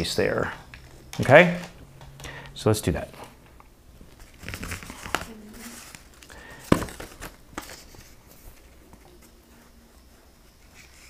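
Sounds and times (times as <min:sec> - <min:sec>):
paper rustling and crinkling: 0:04.1 - 0:09.8.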